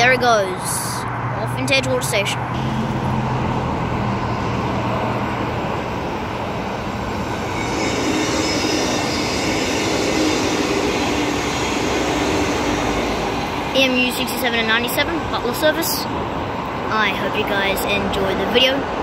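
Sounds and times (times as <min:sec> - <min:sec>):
freeway traffic noise: 0:00.0 - 0:19.0
electric train hiss and hum: 0:02.6 - 0:16.9.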